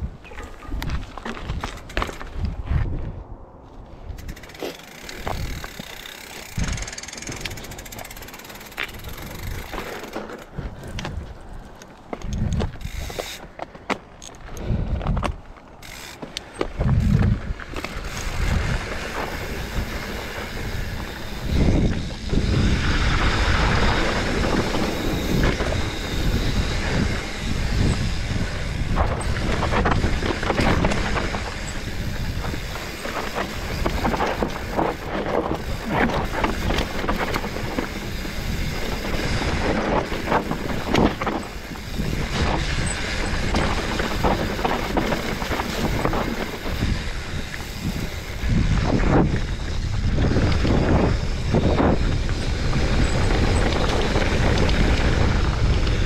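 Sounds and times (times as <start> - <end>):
bike rattling over bumps: 0.0 - 3.0, 4.0 - 56.0
bike tyres crunching over dirt: 0.0 - 56.0
wind rushing: 16.8 - 56.0.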